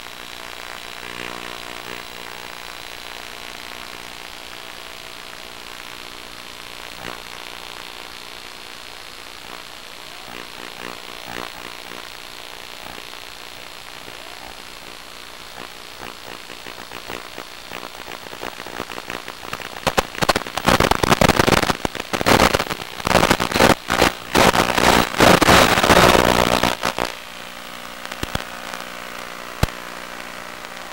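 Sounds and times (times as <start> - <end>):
loud irregular crackling: 12.8 - 27.2, 28.0 - 28.8.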